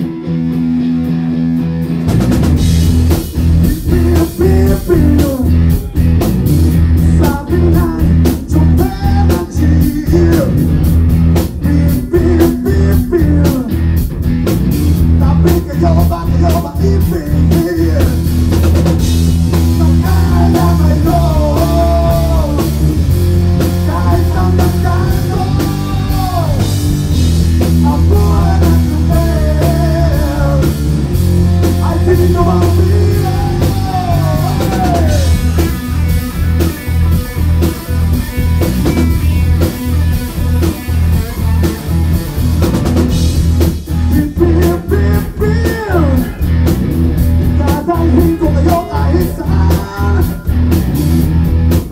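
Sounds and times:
drum kit: 0:00.0 - 0:51.9
electric guitar: 0:00.0 - 0:51.9
male singer: 0:03.6 - 0:06.0, 0:07.0 - 0:10.7, 0:11.6 - 0:13.8, 0:15.2 - 0:18.2, 0:19.8 - 0:22.8, 0:23.8 - 0:26.7, 0:27.8 - 0:30.8, 0:31.8 - 0:35.5, 0:44.1 - 0:46.4, 0:47.5 - 0:50.5.

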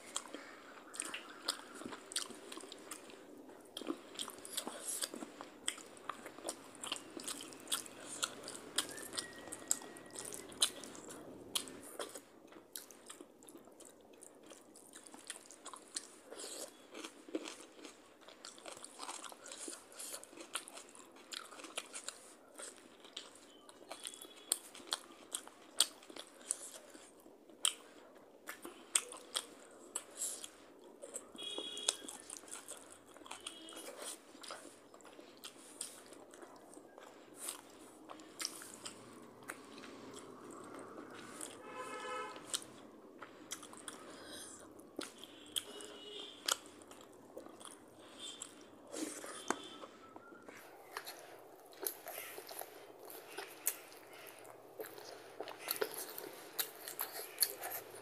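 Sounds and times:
chewing and mouth sounds: 0:00.0 - 0:58.0.

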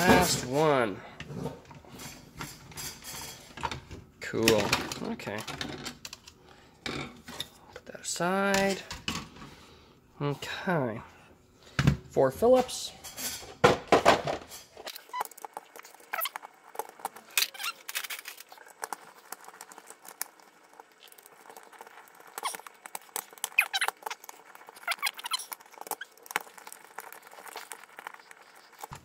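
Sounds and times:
screwdriver squeaks and scrapes: 0:14.8 - 0:18.6, 0:21.7 - 0:29.0.

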